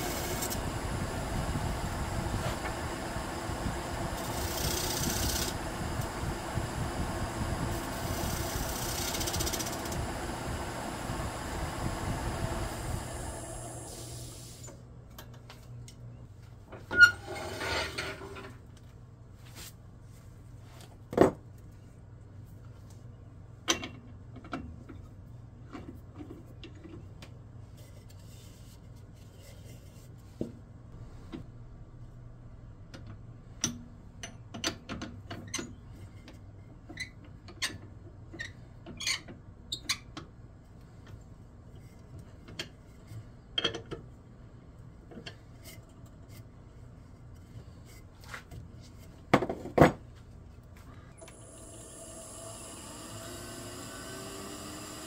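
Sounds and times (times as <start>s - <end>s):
low steady hum: 0.0s - 37.3s
lathe tool cutting wood: 51.7s - 55.0s.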